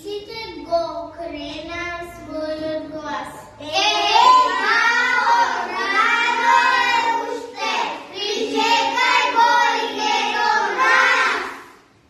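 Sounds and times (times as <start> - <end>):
young children singing: 3.6 - 11.9.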